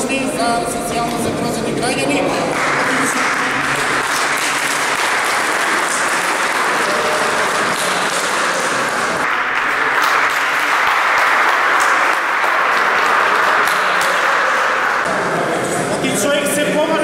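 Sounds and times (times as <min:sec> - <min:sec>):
crowd applauding: 0:02.5 - 0:15.1.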